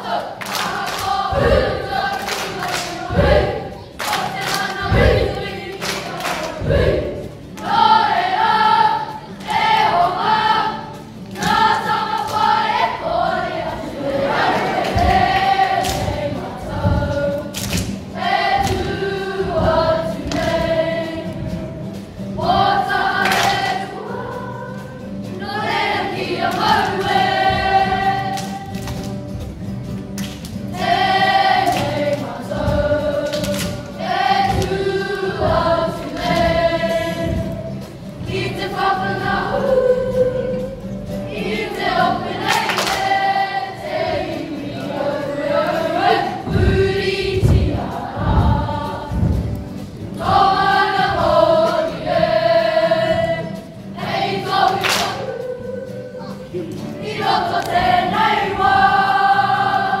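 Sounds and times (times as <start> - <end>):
boys singing in unison: 0.0 - 17.6, 18.2 - 28.8, 30.8 - 49.5, 50.1 - 60.0.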